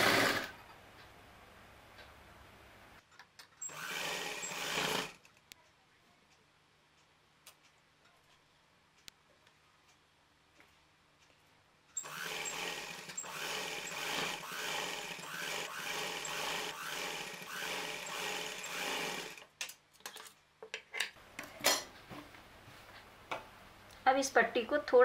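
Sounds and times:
sewing machine stitching: 0.0s - 0.5s, 3.6s - 5.2s, 12.0s - 19.5s.

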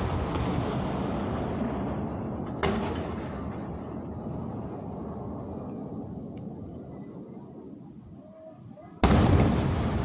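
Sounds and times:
firework sharp crack: 0.0s - 4.6s, 9.0s - 10.0s
firework burst rumbling: 0.0s - 6.4s, 9.0s - 10.0s.

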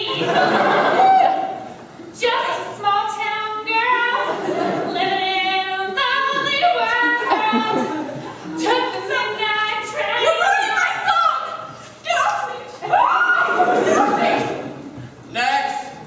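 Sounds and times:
girl singing: 2.2s - 4.3s, 4.9s - 8.0s, 8.6s - 12.8s.

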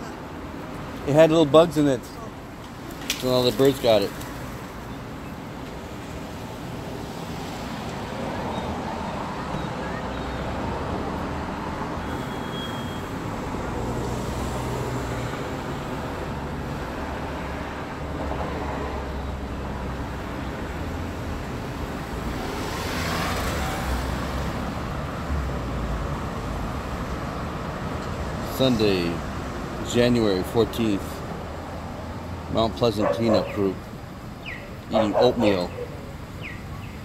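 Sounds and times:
city street traffic: 0.0s - 37.0s
vehicle passing: 13.1s - 29.9s.

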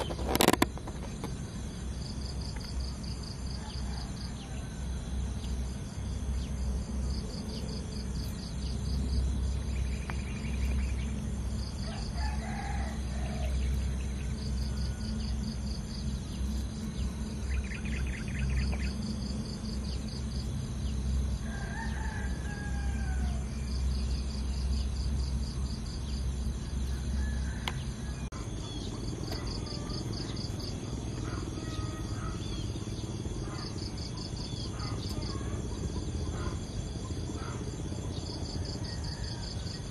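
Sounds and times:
insects chirping: 0.0s - 39.9s
low steady rumble: 0.0s - 39.9s
bird calls: 2.6s - 25.6s, 26.6s - 39.9s
distant rooster crowing: 3.3s - 5.6s, 11.6s - 15.8s, 21.2s - 24.0s, 26.6s - 28.6s, 37.2s - 39.9s.

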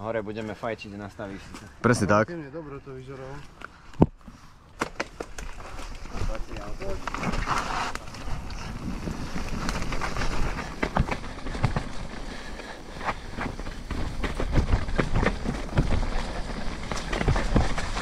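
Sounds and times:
bike clattering over bumps: 4.8s - 18.0s
tyres rushing on dirt: 5.6s - 18.0s.

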